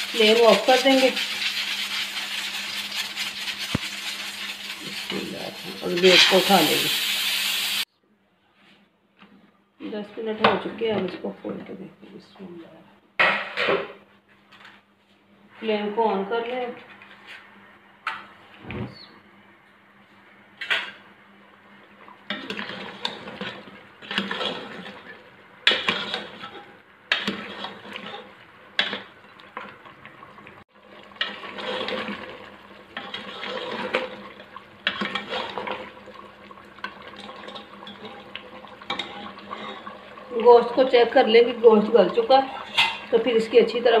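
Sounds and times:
metal spoon scraping a pot: 0.0s - 6.5s, 22.3s - 28.2s, 34.8s - 35.8s, 38.9s - 40.0s, 42.3s - 43.1s
liquid sloshing: 28.9s - 41.1s.

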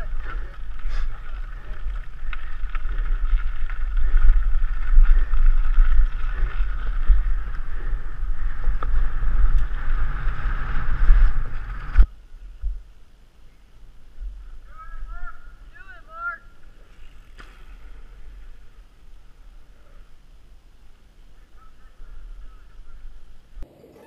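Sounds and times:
bike tyres crunching on gravel: 0.0s - 12.1s
wind buffeting microphone: 0.0s - 12.8s.

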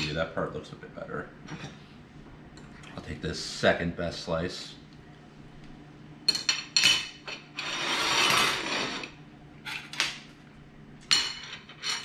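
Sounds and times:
forks clinking on plates: 11.1s - 12.0s.

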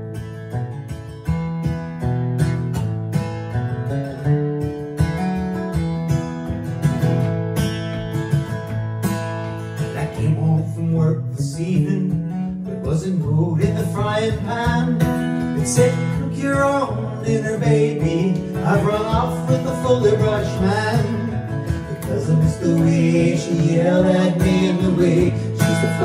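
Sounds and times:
acoustic guitar picking: 0.0s - 26.0s
man singing: 10.0s - 26.0s.

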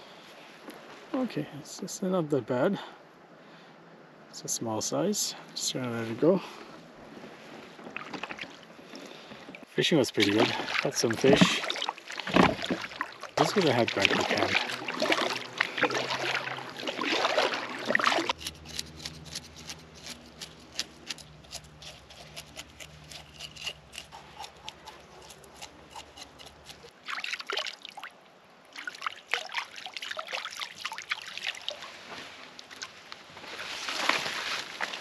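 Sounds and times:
paddle splashes: 7.9s - 18.4s, 27.0s - 28.1s.

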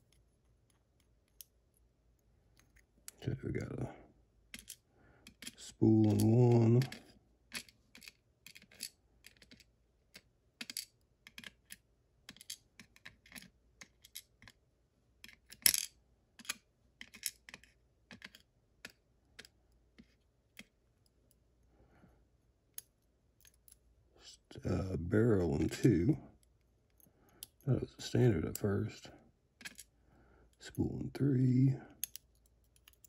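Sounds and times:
tweezers and pins clicking on metal: 32.0s - 33.0s.

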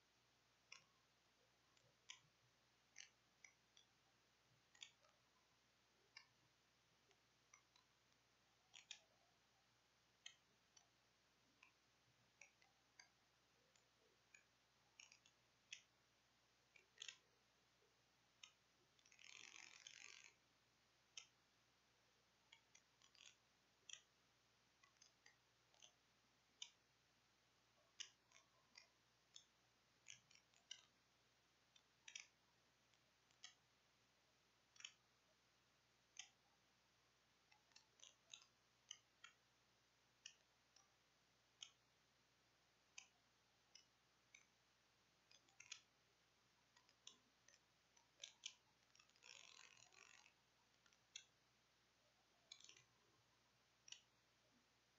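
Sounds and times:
faint clicks: 0.6s - 1.1s, 1.7s - 5.4s, 7.0s - 9.2s, 10.2s - 16.0s, 16.7s - 17.3s, 18.4s - 20.4s, 22.5s - 24.2s, 24.8s - 26.9s, 27.7s - 31.0s, 31.6s - 33.7s, 34.6s - 35.2s, 36.0s - 36.5s, 37.2s - 39.5s, 40.2s - 41.9s, 42.8s - 44.6s, 45.2s - 46.1s, 46.7s - 51.4s, 52.3s - 54.2s.

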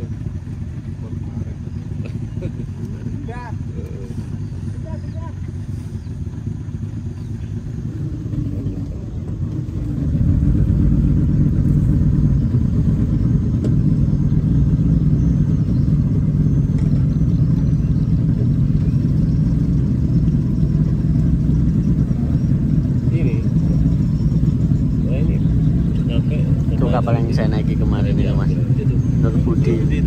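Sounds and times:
speedboat engines rumbling: 0.0s - 30.0s.

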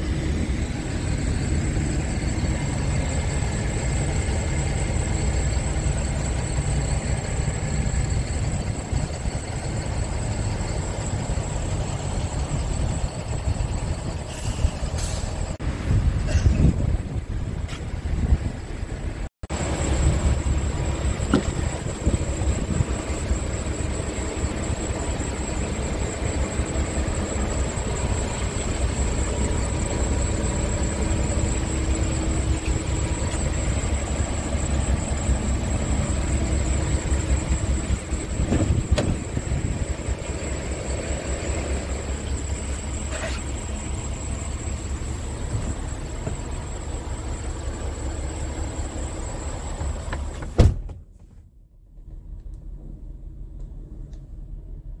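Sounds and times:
high-pitched whine: 0.0s - 50.5s
diesel engine idling: 0.0s - 50.6s.

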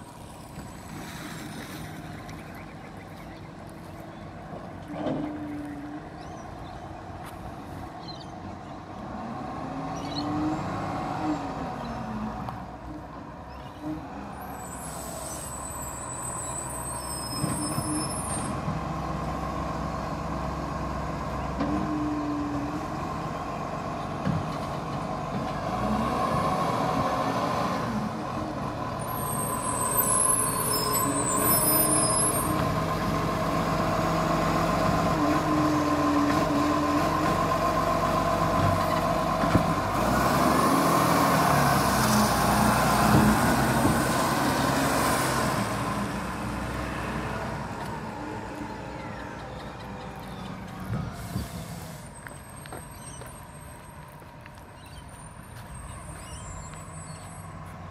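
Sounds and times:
truck diesel engine revving: 4.2s - 52.6s
air brake hisses: 51.2s - 52.1s.

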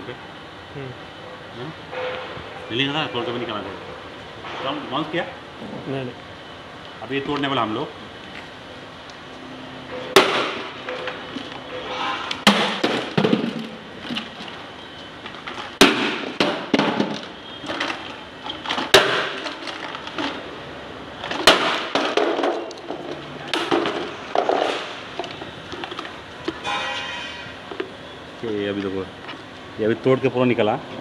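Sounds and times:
plastic clattering: 15.3s - 20.4s
plastic wheel cracking on concrete: 15.3s - 20.4s.

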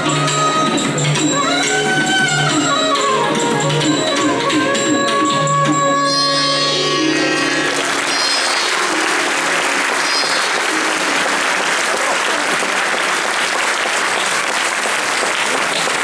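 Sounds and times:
accompanying music: 0.0s - 14.7s
audience applauding: 7.5s - 16.0s.

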